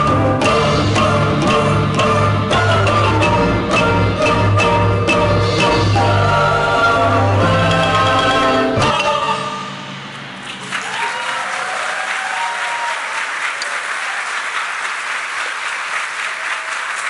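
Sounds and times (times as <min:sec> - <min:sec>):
choir singing: 0:00.0 - 0:10.0
large audience applauding: 0:10.4 - 0:17.0.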